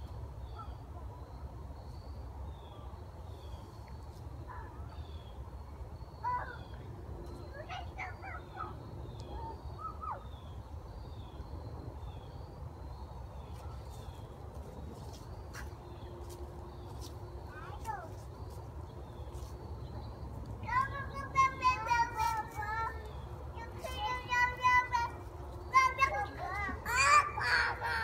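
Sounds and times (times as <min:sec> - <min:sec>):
rising and falling calls: 0:23.8 - 0:28.0.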